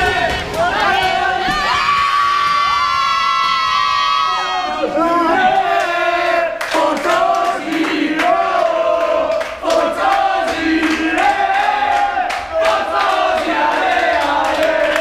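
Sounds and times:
men chanting and singing: 4.7 - 15.0
rhythmic hand clapping: 5.4 - 15.0.

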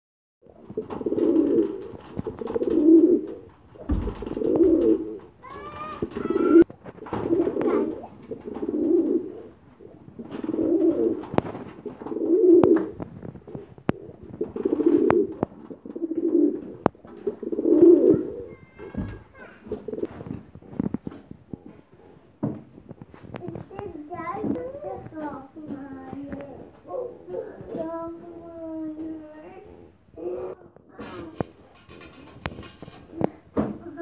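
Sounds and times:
pigeons cooing: 0.5 - 19.0, 26.5 - 27.8, 29.2 - 33.3.

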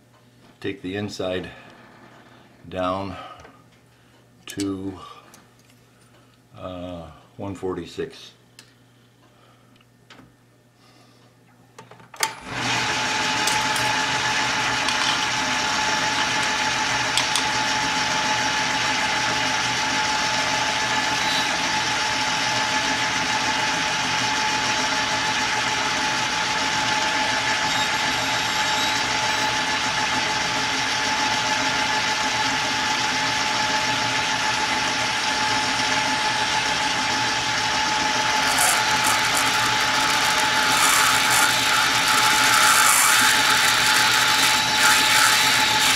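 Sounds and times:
lathe whining: 12.4 - 45.9.

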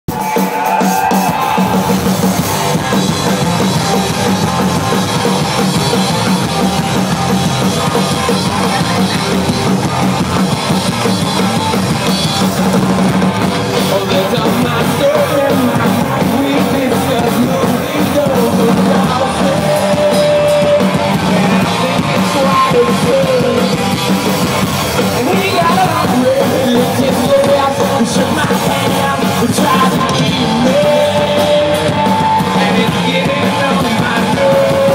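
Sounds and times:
sung and shouted vocals: 0.1 - 4.7, 13.6 - 24.1, 25.0 - 34.9
live rock band playing: 0.1 - 34.9.

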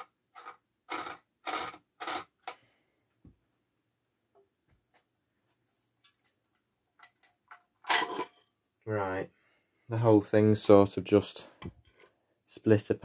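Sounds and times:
screws scraping clicks: 0.4 - 2.6.

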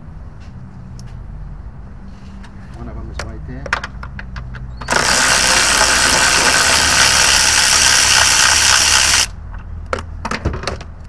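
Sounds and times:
power wrench running: 4.8 - 9.3.

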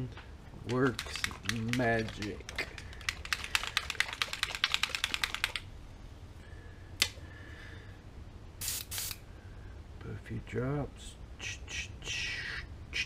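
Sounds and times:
paint bottle rattling when shaken: 0.6 - 5.7.

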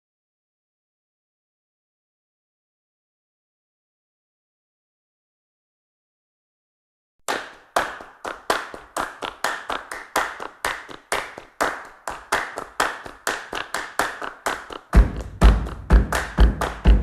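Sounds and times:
hand claps: 7.2 - 17.0.

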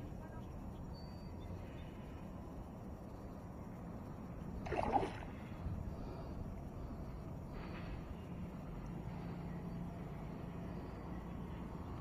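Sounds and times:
wind: 0.0 - 12.0
water noise: 4.0 - 7.8.

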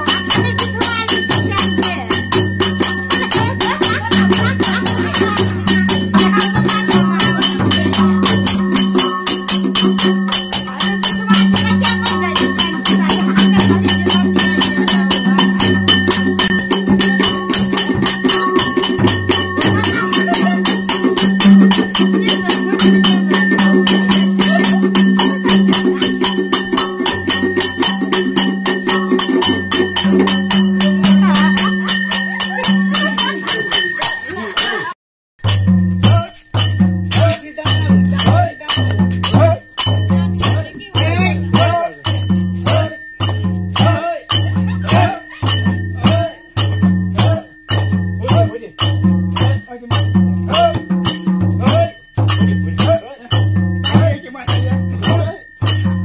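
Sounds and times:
barrel drum beating: 0.0 - 56.0
rattling jingle: 0.0 - 56.0.

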